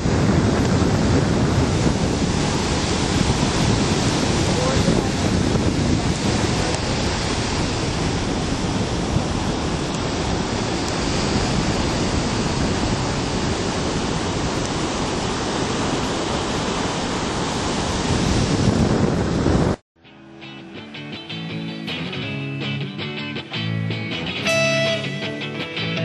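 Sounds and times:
whitewater washing up beach: 0:00.0 - 0:19.7
ocean waves breaking: 0:00.0 - 0:19.8.

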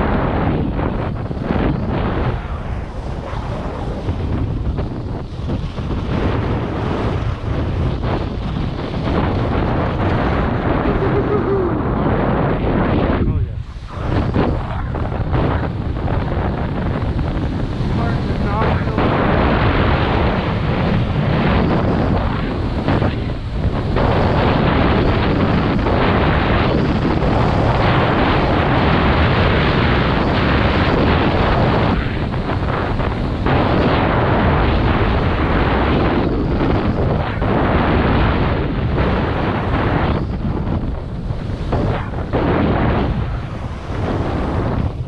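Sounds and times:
wind rushing over microphone: 0:00.0 - 0:45.0.

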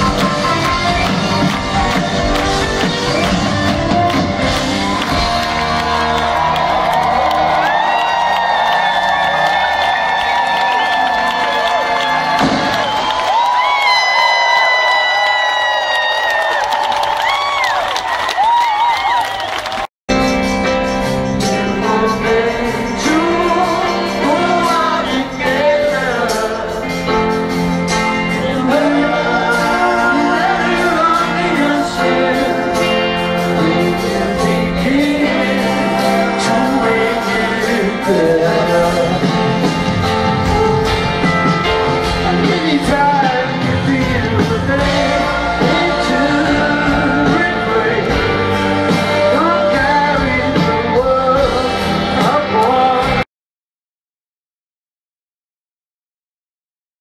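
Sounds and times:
live rock band playing: 0:00.0 - 0:15.0, 0:20.1 - 0:53.2
lead vocal singing: 0:21.4 - 0:53.2.

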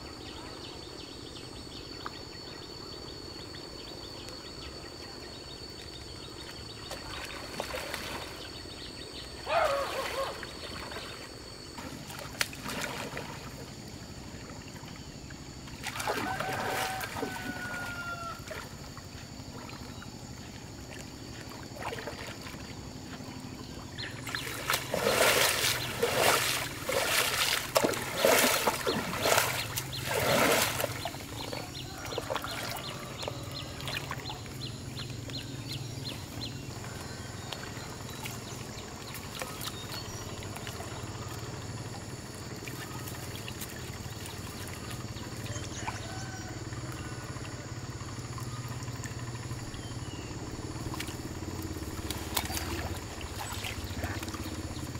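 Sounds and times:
low steady hum: 0:00.0 - 0:54.9
water splashing from net: 0:06.9 - 0:08.5, 0:09.5 - 0:13.7, 0:15.6 - 0:19.9, 0:20.8 - 0:22.8, 0:24.1 - 0:34.6, 0:37.5 - 0:47.6, 0:50.2 - 0:54.9
water dripping and trickling: 0:24.1 - 0:35.5, 0:42.4 - 0:46.0, 0:50.7 - 0:54.9.

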